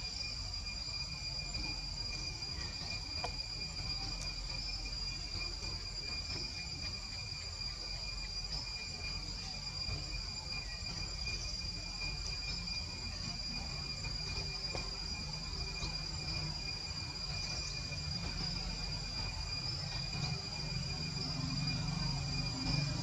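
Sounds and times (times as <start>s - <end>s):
insect chorus trilling: 0.0s - 23.0s.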